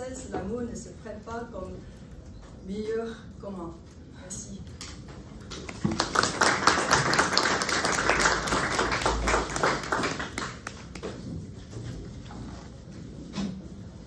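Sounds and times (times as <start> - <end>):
audience clapping: 5.6 - 11.3.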